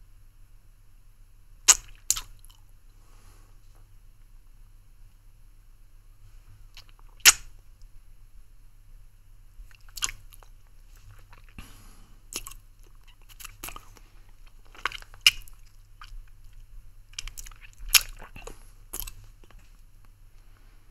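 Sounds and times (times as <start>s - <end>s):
wet mouth clicks and smacks: 1.7s - 2.6s, 6.7s - 7.5s, 9.7s - 11.6s, 12.3s - 19.6s.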